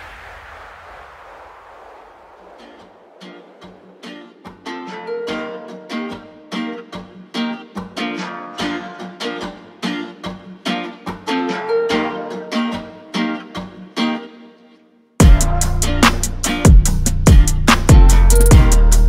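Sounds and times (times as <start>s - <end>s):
strummed acoustic strings: 4.3s - 19.0s.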